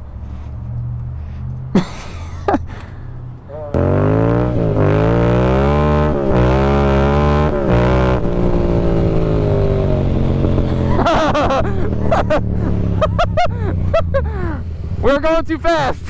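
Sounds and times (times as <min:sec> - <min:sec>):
motorcycle engine accelerating: 0:03.7 - 0:15.4.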